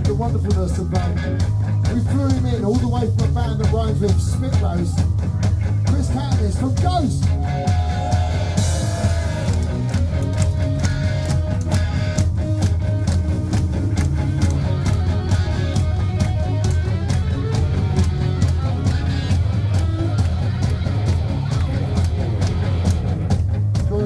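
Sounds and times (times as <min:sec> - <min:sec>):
live punk rock band: 0:00.0 - 0:24.0.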